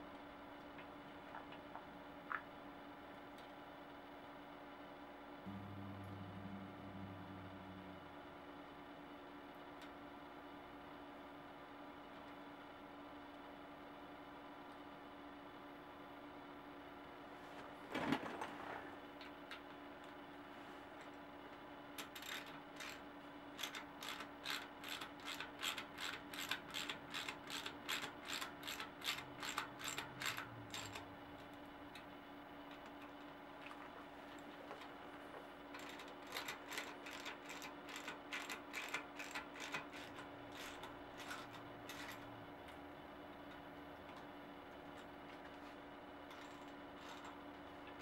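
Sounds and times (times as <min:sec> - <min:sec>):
ratchet handle clicking: 0:22.0 - 0:23.0, 0:23.6 - 0:31.0, 0:35.8 - 0:42.2.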